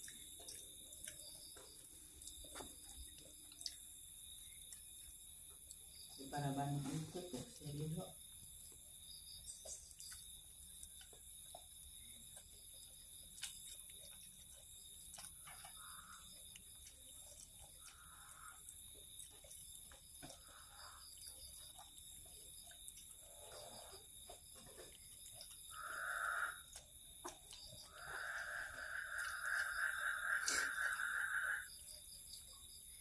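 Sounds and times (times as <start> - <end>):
kitten chewing food: 9.9 - 20.6.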